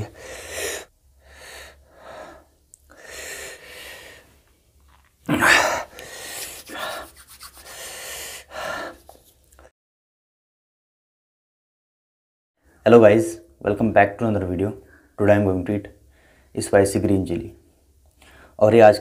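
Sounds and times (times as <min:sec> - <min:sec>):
man breathing hard and gasping: 0:00.0 - 0:04.4, 0:05.4 - 0:09.1.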